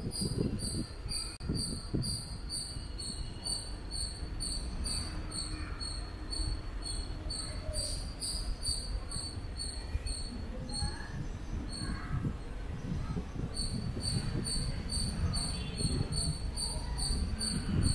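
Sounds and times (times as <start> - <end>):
cricket chirping: 1.6 - 10.9, 13.6 - 17.9.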